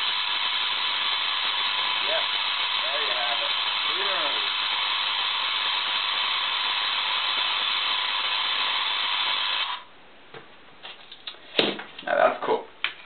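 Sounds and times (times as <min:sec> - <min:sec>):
tesla coil buzzing: 0:00.0 - 0:09.9.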